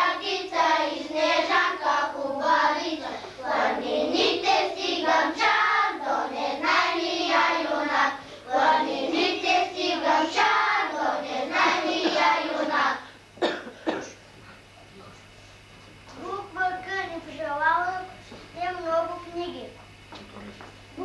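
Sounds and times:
young children singing: 0.0s - 13.0s.

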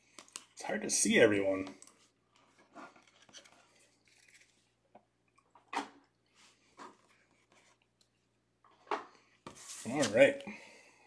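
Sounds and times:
cards rustling: 1.6s - 4.8s.

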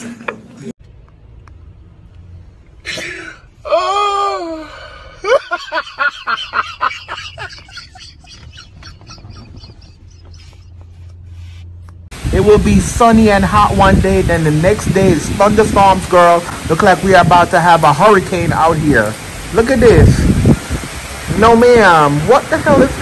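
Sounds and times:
person exclaiming: 2.9s - 5.4s
person laughing: 2.9s - 11.2s.

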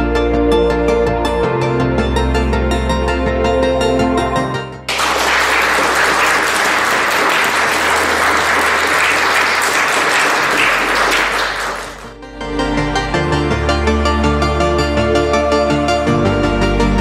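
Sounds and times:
background music: 0.0s - 17.0s
crowd applause: 4.9s - 12.1s.

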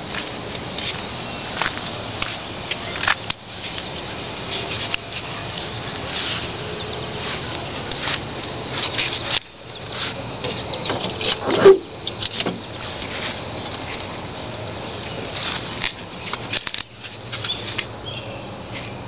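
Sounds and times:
footsteps: 4.5s - 10.2s.

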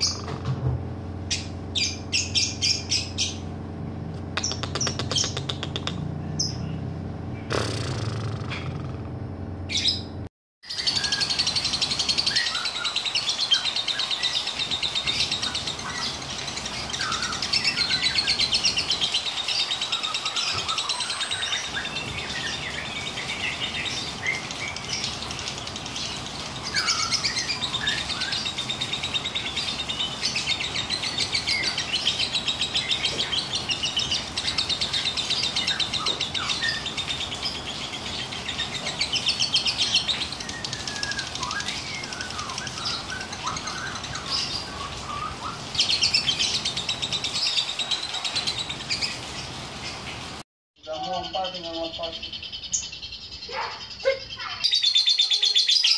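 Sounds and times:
bird chirps: 0.0s - 0.4s, 1.3s - 3.5s, 4.3s - 9.0s, 9.7s - 50.1s, 50.8s - 55.9s
lovebird rattling trill: 4.4s - 6.5s.

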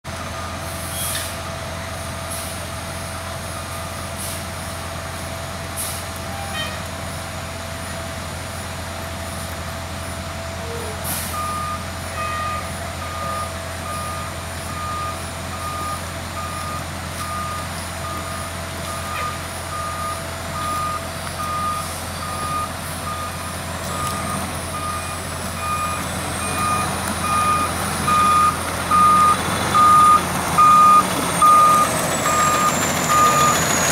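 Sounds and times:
diesel engine running: 0.0s - 33.9s
back-up alarm beeping: 11.4s - 33.9s.

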